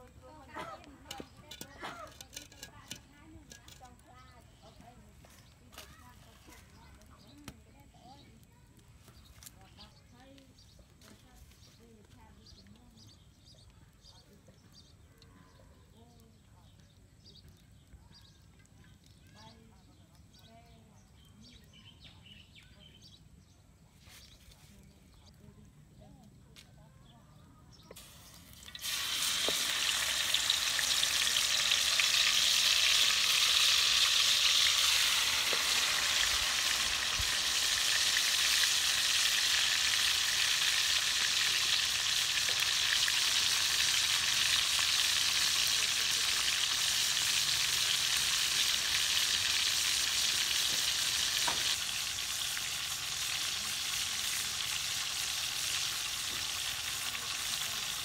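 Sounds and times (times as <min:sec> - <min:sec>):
chicken sizzling in hot oil: 0:01.0 - 0:08.3, 0:27.9 - 0:58.0.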